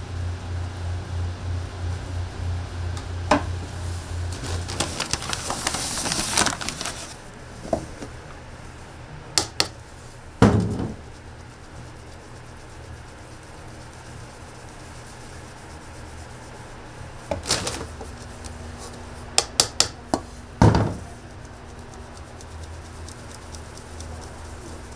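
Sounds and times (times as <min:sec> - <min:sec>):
low pulsing machine hum: 0:00.0 - 0:19.4, 0:20.0 - 0:24.9
thump: 0:10.4 - 0:11.0, 0:20.6 - 0:21.1.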